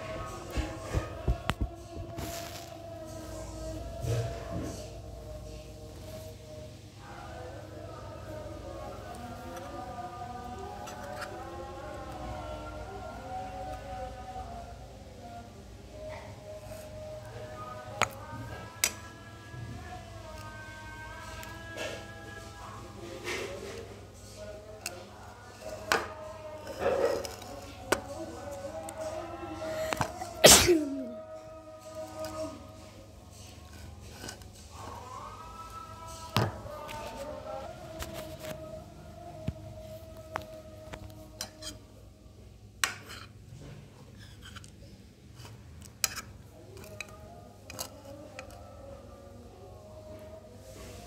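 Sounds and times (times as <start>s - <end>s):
faint music: 0.0s - 51.0s
person sneezing: 30.4s - 31.1s
metal spoon scraping ceramic bowl: 42.8s - 43.4s, 44.1s - 44.8s, 45.4s - 48.6s.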